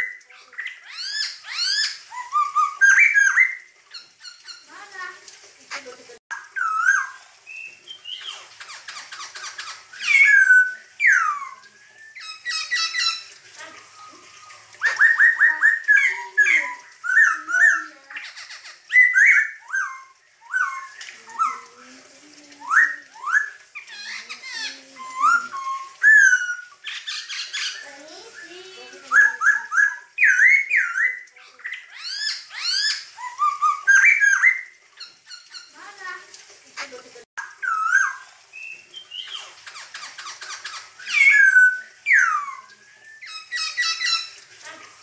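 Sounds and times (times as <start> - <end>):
bird singing: 6.4 - 21.8, 22.5 - 35.8, 37.5 - 44.4.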